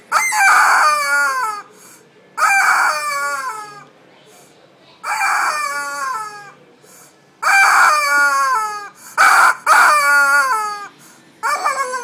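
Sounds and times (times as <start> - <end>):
rubber squeeze chicken squawking: 0.1 - 1.7, 2.4 - 3.8, 5.0 - 6.6, 7.4 - 12.0.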